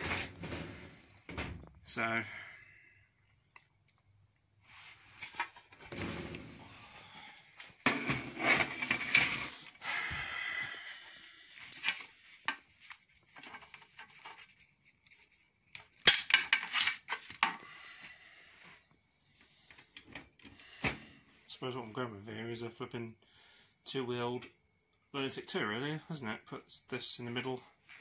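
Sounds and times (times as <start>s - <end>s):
metal parts clattering on metal bench: 0.0s - 1.6s, 5.2s - 6.6s, 7.9s - 9.5s, 16.0s - 17.2s.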